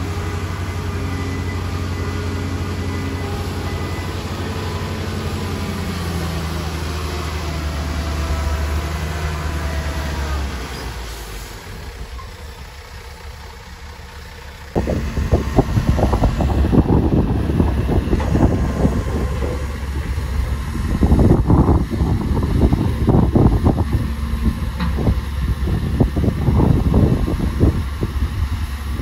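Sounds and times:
diesel engine running: 0:00.0 - 0:29.0
loud rumbling and clattering: 0:00.0 - 0:29.0.

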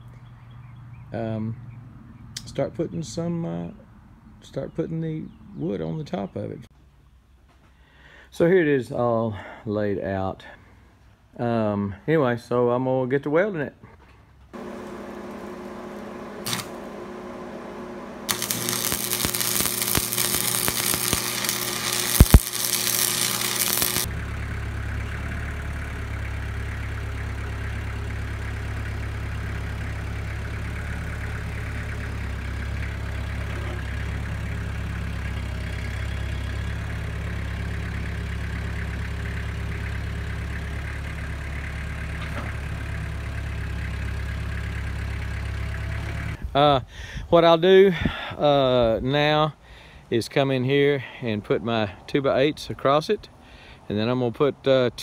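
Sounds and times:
arc welding crackling hiss: 0:14.6 - 0:17.1, 0:18.2 - 0:24.1
tractor diesel engine droning: 0:14.6 - 0:46.5.

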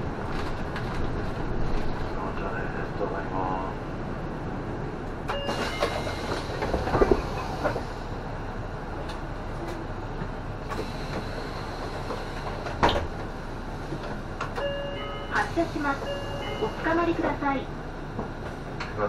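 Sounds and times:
bus engine idling: 0:00.0 - 0:19.0.

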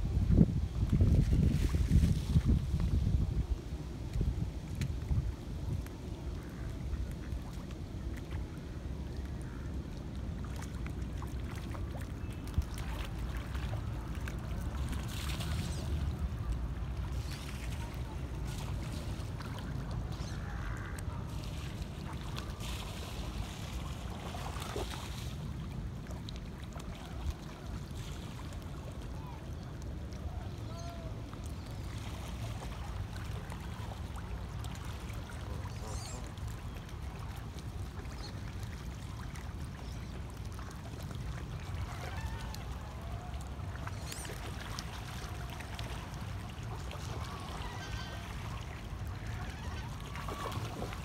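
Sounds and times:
wind rumbling on microphone: 0:00.0 - 0:09.8
small waves lapping: 0:00.0 - 0:51.0.

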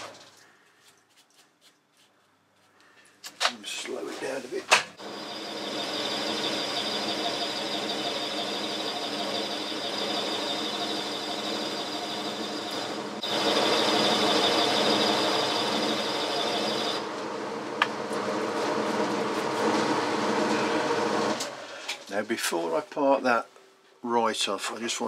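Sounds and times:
high-pitched cutting whine: 0:05.0 - 0:17.9
lathe machine hum: 0:05.0 - 0:22.0.

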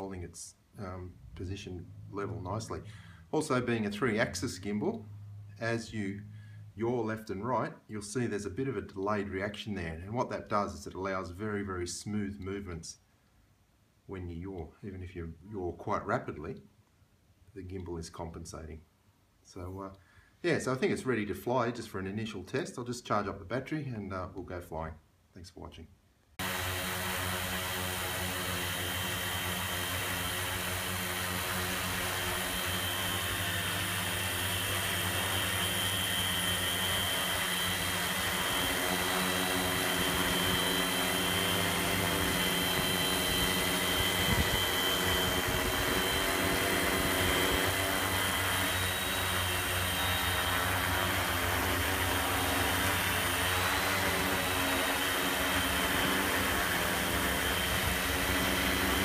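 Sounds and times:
drone propellers whining: 0:26.4 - 0:59.0.

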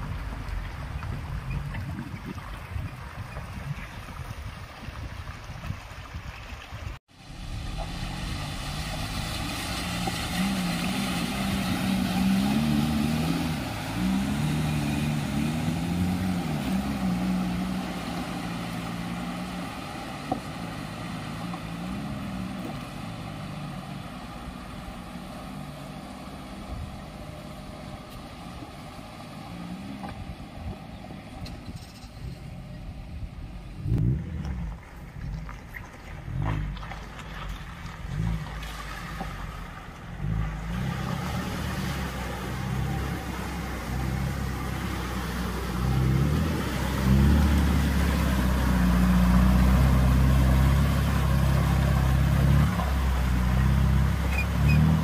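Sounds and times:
water rushing and splashing: 0:00.0 - 0:31.6, 0:33.5 - 0:55.0
car engine revving: 0:07.2 - 0:30.1, 0:38.1 - 0:55.0.

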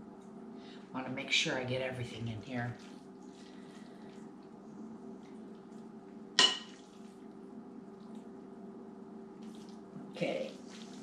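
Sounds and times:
steady low hum: 0:00.0 - 0:11.0
serving utensil clinking on dish: 0:06.4 - 0:06.8.

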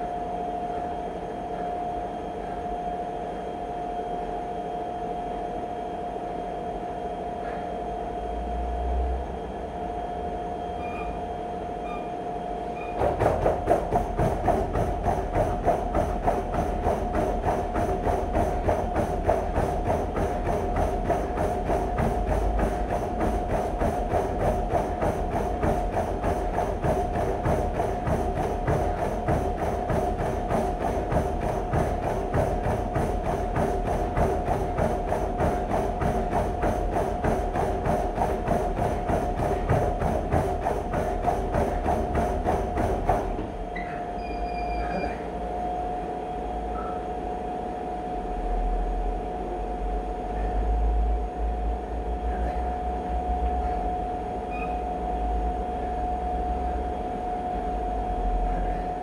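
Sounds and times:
treadmill motor whine: 0:00.0 - 0:59.0
footfalls on treadmill belt: 0:12.8 - 0:44.2.

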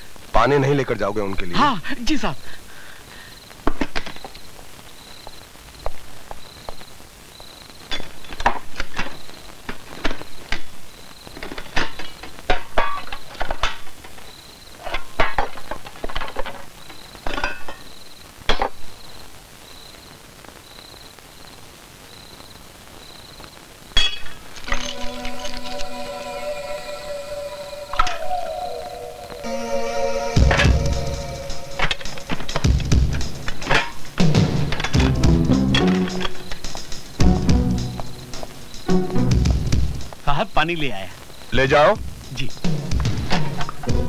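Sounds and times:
faint high chirp: 0:24.0 - 0:32.3.

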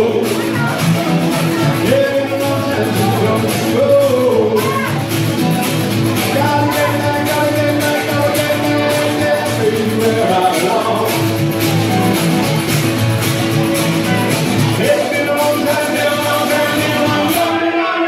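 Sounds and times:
person singing: 0:00.0 - 0:05.2, 0:06.1 - 0:11.5, 0:14.6 - 0:18.0
steady drum beat: 0:00.0 - 0:17.6
guitar: 0:00.0 - 0:18.0.

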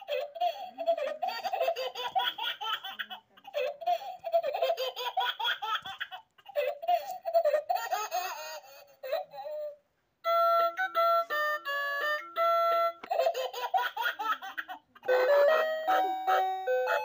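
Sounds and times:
background music melody: 0:09.5 - 0:17.0.

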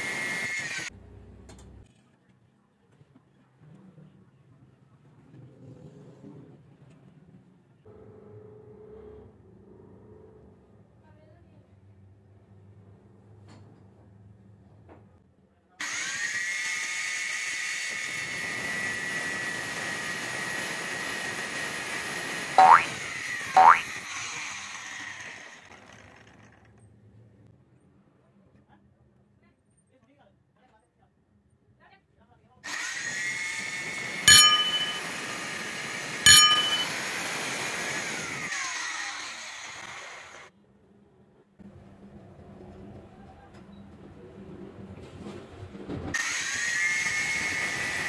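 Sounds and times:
angle grinder cutting steel: 0:32.7 - 0:37.9
sharp metallic clangs: 0:34.3 - 0:35.1, 0:36.3 - 0:37.0
angle grinder cutting metal: 0:34.3 - 0:35.3, 0:36.0 - 0:37.3.

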